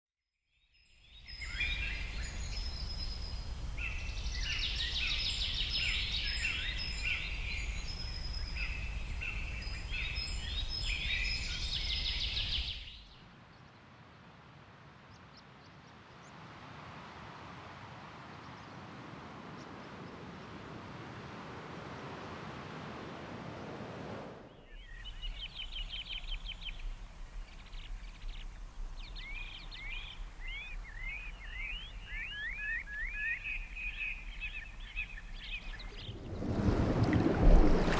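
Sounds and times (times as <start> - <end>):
dense birdsong: 0.5 - 13.9, 24.5 - 37.0
steady rushing noise: 20.1 - 24.6, 35.8 - 37.9
low rumble: 35.8 - 37.9.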